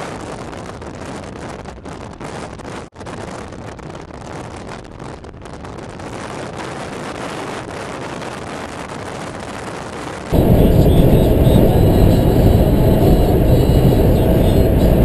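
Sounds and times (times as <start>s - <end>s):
road and wind noise in car: 0.0s - 15.0s
loud sound: 10.3s - 15.0s.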